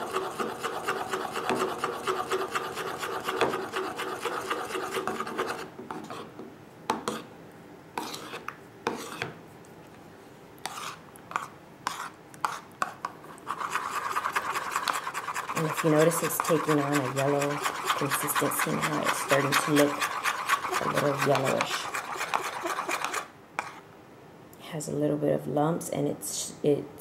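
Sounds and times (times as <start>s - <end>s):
spoon scraping plastic bowl: 0.0s - 6.4s, 7.0s - 7.3s, 8.0s - 9.4s, 10.6s - 23.8s.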